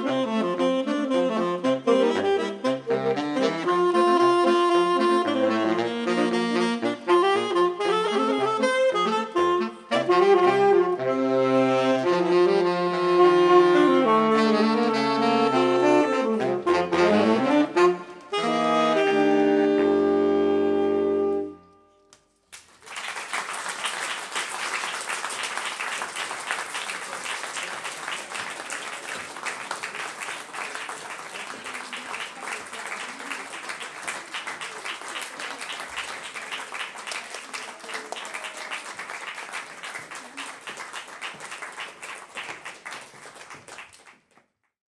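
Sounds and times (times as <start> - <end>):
saxophone quartet chord: 0.0 - 21.9
audience applauding: 22.5 - 44.6.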